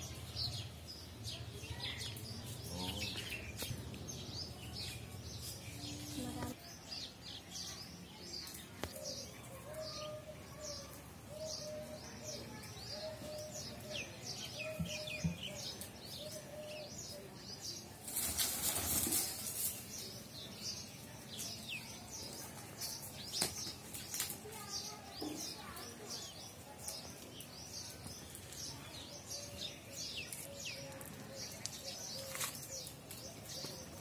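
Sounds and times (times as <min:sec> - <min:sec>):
small birds chirping: 0:00.0 - 0:34.0
peacock wings flapping: 0:18.0 - 0:19.8.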